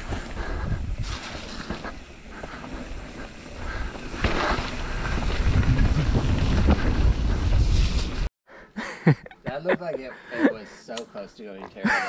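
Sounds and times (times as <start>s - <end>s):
wind buffeting microphone: 0.0s - 1.3s, 1.9s - 8.3s
mountain bike rumbling on dirt trail: 0.0s - 8.3s.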